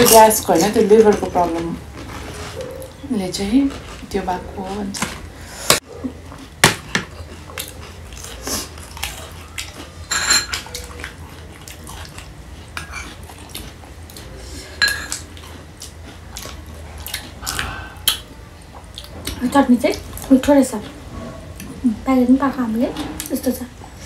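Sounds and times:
cutlery clinking on plates: 0:10.1 - 0:10.8, 0:14.8 - 0:15.3.

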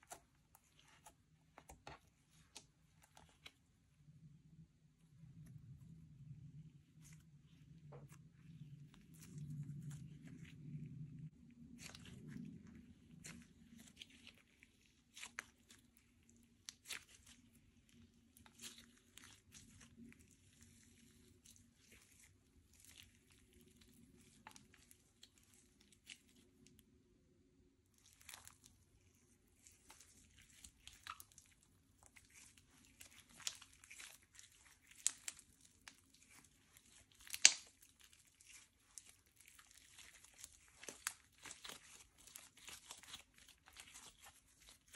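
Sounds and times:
slime squished by hand: 0:06.9 - 0:26.8, 0:27.8 - 0:44.9
slime crackling clicks and pops: 0:37.2 - 0:37.7.

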